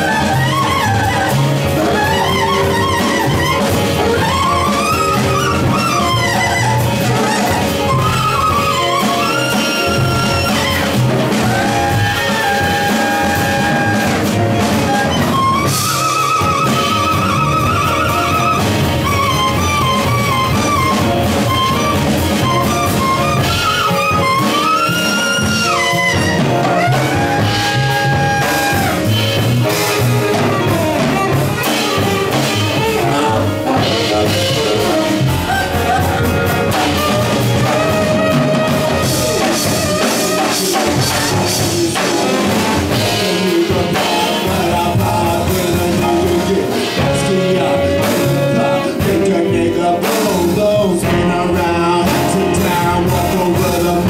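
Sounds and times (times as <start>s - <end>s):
tenor saxophone solo: 0.0s - 44.6s
drum kit: 0.0s - 54.0s
upright bass: 0.0s - 54.0s.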